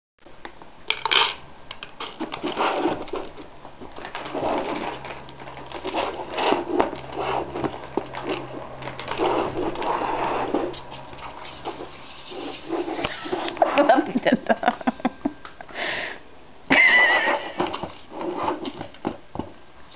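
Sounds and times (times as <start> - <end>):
food and claws clicking on plastic: 0.9 - 11.9
cats eating from plastic bowl: 2.1 - 13.6.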